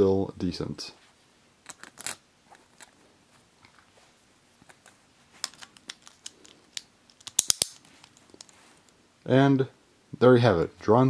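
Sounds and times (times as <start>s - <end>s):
toy parts clicking together: 4.7s - 8.5s.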